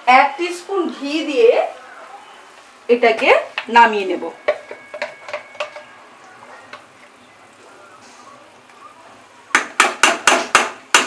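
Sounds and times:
curry simmering faintly: 4.3s - 9.6s.

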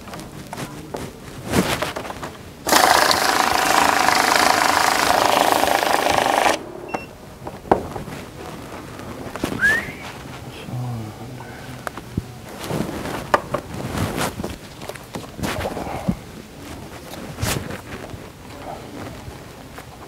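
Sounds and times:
banknote counting machine running: 2.7s - 6.7s.

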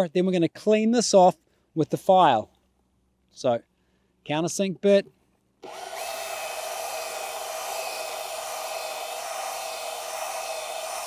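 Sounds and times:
cordless drill whining: 5.6s - 11.0s
drill bit cutting: 5.6s - 11.0s.

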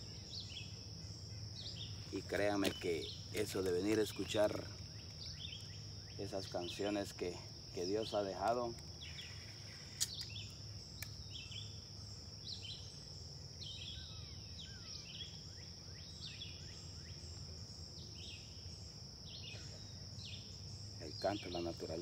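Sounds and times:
high-pitched insect drone: 0.0s - 22.0s
wild birds chirping: 0.0s - 22.0s.

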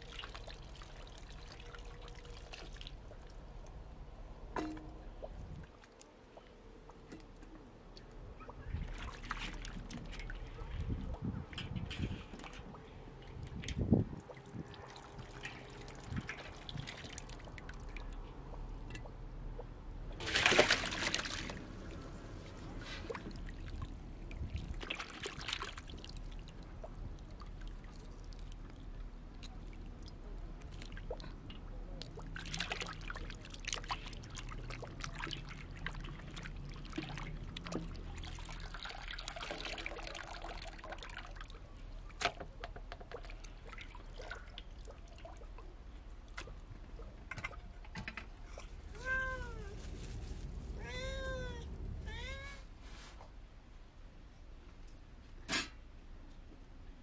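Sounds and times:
hands sloshing meat in water: 13.4s - 18.5s, 20.2s - 42.2s, 43.1s - 46.9s.

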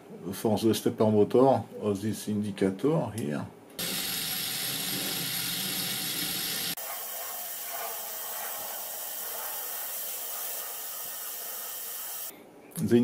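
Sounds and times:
motor and gears whirring: 3.8s - 12.3s.

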